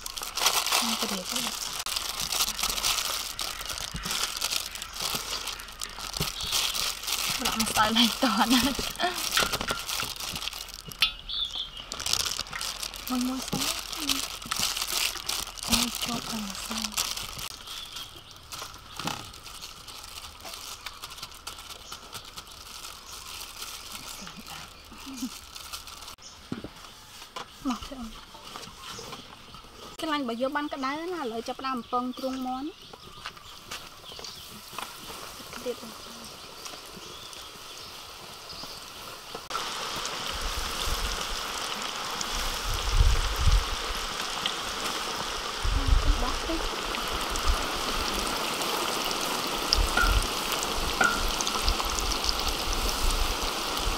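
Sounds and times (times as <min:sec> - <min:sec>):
flour rustling: 0:00.0 - 0:11.0, 0:11.8 - 0:26.2
oil sizzling in a wok: 0:00.0 - 0:26.2, 0:34.4 - 0:53.9
plastic gloves crinkling: 0:00.0 - 0:30.0, 0:32.1 - 0:53.9
small ticks and scrapes: 0:00.0 - 0:30.0, 0:32.2 - 0:40.1.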